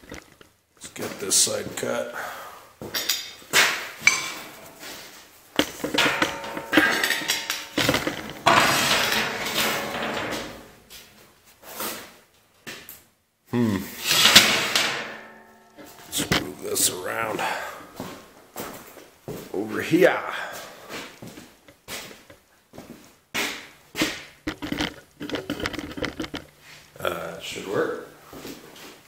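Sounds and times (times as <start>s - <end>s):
steel plate clanking: 4.0s - 11.0s, 14.0s - 17.0s
metal scraping: 4.0s - 11.1s, 14.0s - 17.5s.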